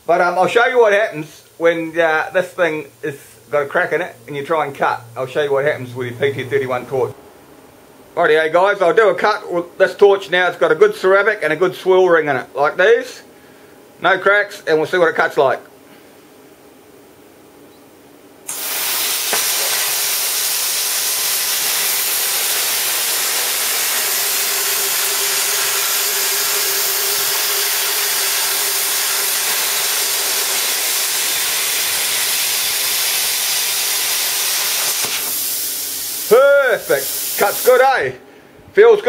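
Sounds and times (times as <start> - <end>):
plasma cutter hissing: 18.5 - 37.9.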